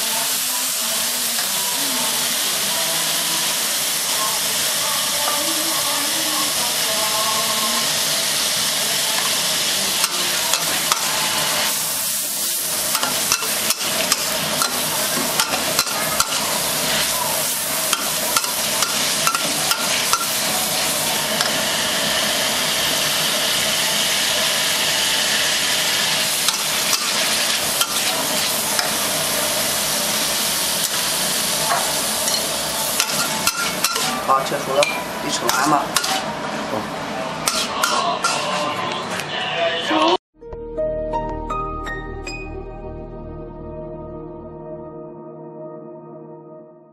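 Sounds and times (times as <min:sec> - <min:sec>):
food sizzling in wok: 0:00.0 - 0:38.8
metal spatula scraping wok: 0:30.8 - 0:36.4, 0:37.4 - 0:38.9.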